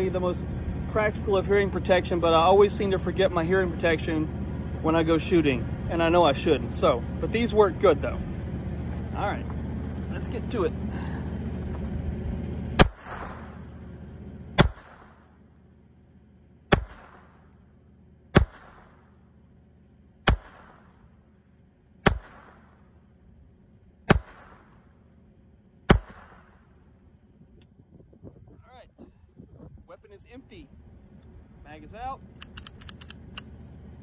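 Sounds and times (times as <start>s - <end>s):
pistol shots: 12.8s - 13.6s, 14.6s - 15.2s, 16.7s - 17.5s, 18.3s - 19.1s, 20.2s - 20.9s, 22.0s - 22.8s, 24.1s - 24.8s, 25.9s - 26.6s.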